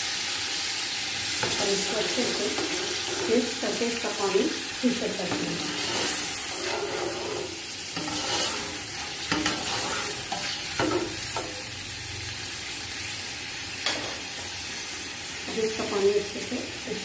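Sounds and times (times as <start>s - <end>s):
food sizzling: 0.0s - 17.0s
metal spoon scraping pot: 5.3s - 11.0s.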